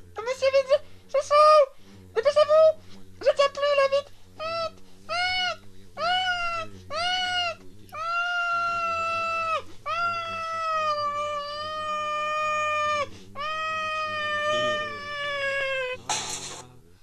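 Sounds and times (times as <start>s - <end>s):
high-pitched squeaky voice screaming: 4.4s - 16.0s.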